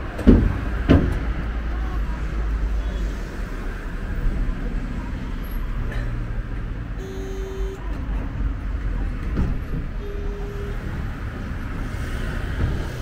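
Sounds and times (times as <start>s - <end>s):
tram rumbling on track: 0.0s - 13.0s
short steady tones: 7.0s - 7.8s, 10.0s - 11.0s.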